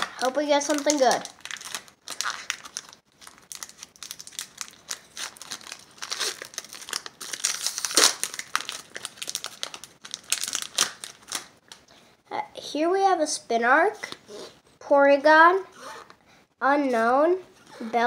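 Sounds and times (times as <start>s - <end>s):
foil wrapper crinkling and tearing: 0.3s - 11.6s.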